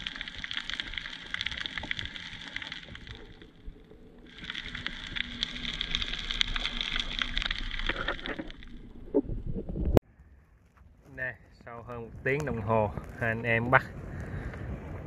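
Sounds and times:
crackle of tiny clicks: 0.0 - 10.0
underwater wash: 0.0 - 10.0
low underwater rumble: 0.0 - 11.0.

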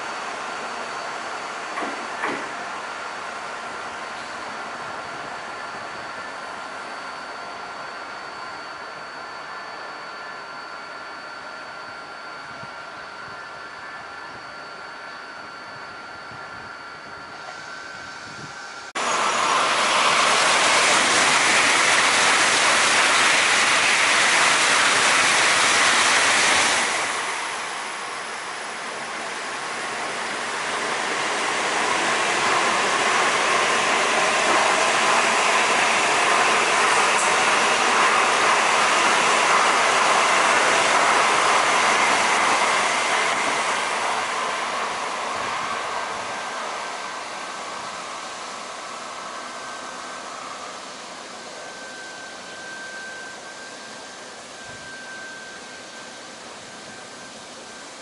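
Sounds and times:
train rushing past: 17.4 - 57.4.

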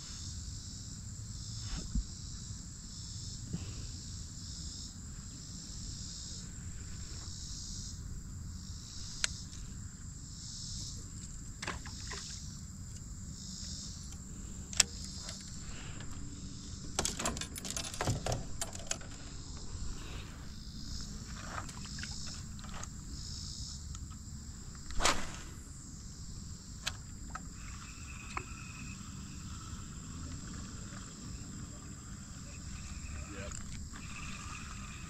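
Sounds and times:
insects chirring: 0.0 - 35.0.

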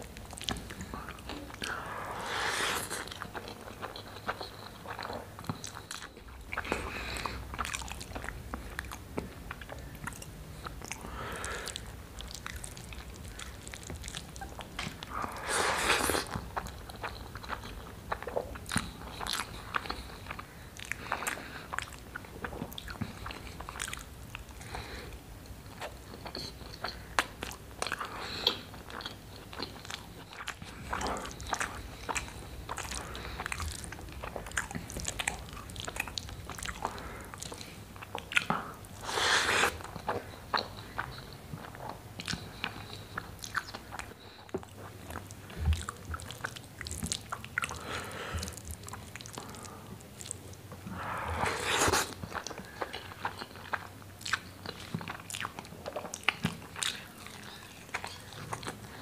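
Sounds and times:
wet chewing and lip smacking: 0.0 - 59.0.

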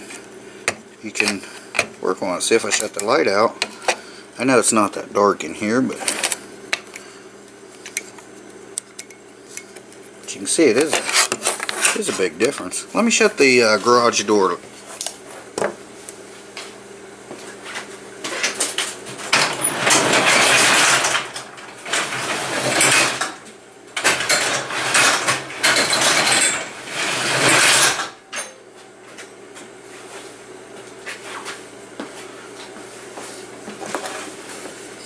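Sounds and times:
garage door closing mechanism: 19.2 - 23.4, 24.0 - 28.3.

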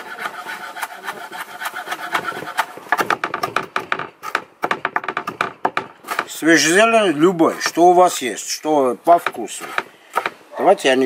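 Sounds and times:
knife chopping on wooden board: 0.8 - 6.7, 9.1 - 10.4.

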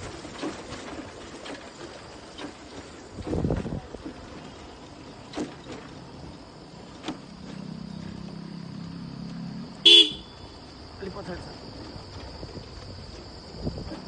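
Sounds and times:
scooter horn toot: 9.8 - 10.4.

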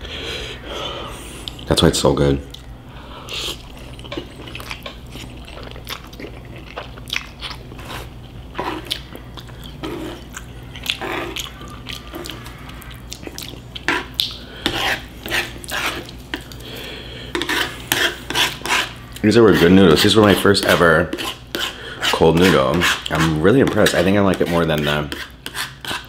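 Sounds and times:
chewing noodles with mouth clicks: 3.4 - 14.4.

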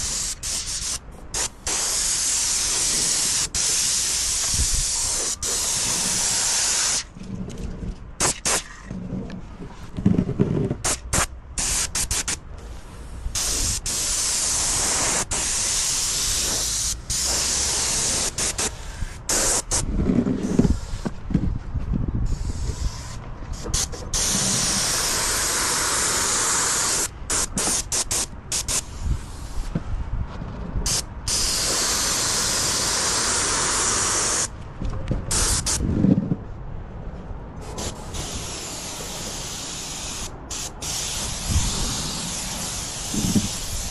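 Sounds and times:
paint spray gun hissing: 0.0 - 7.0, 13.4 - 19.8, 30.9 - 34.5, 37.8 - 43.9.

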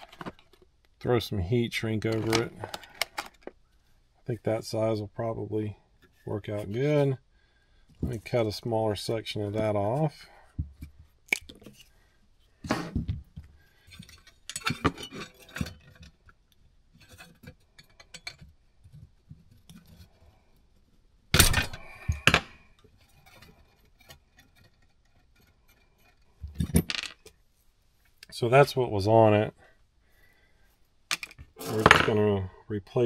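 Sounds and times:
tools and parts clinking: 0.0 - 0.7, 2.0 - 3.6, 12.7 - 16.4, 17.0 - 19.0, 21.4 - 27.4, 31.1 - 32.2.

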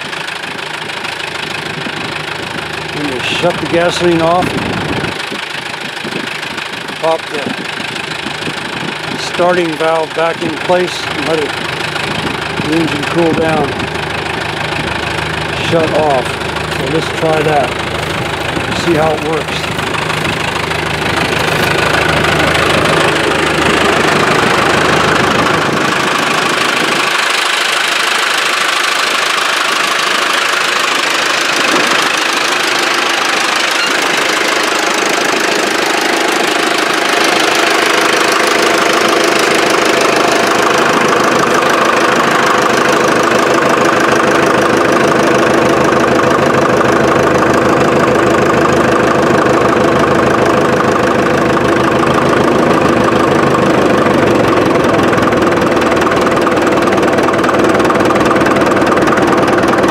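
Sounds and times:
crawler engine idling: 0.0 - 59.9.

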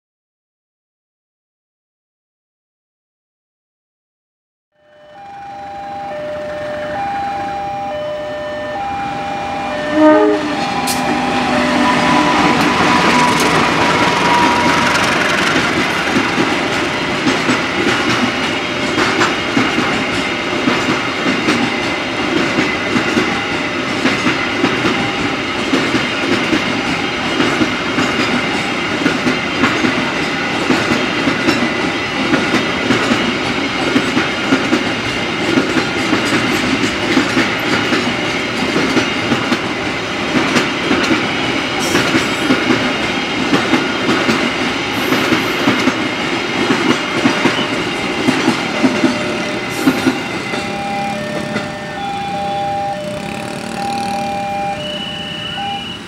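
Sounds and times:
freight train rumbling past: 5.7 - 56.0
wheels clicking over rail joints: 12.0 - 52.0.

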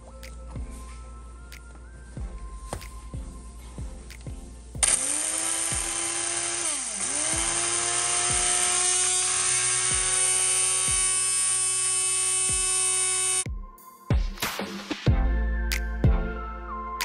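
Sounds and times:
background music with beat: 0.0 - 5.0, 8.3 - 8.8, 13.4 - 17.0
electric blender grinding: 4.8 - 13.4.

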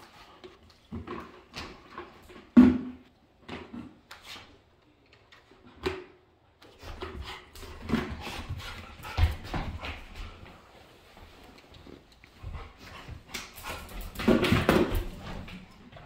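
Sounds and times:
dog knocking plastic bucket: 1.0 - 3.0, 14.1 - 15.3.

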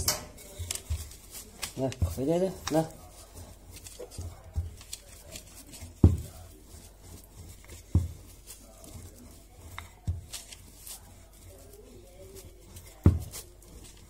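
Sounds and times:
rolling pin rubbing dough: 0.0 - 14.0
rolling pin dull thumps: 6.0 - 6.4.

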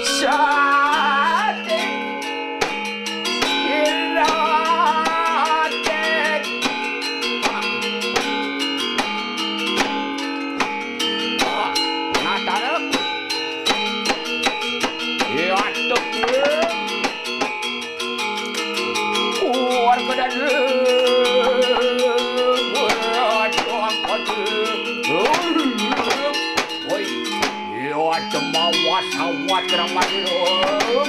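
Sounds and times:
metallophones struck with mallets: 0.0 - 31.0
person singing gliding notes: 18.8 - 31.0.

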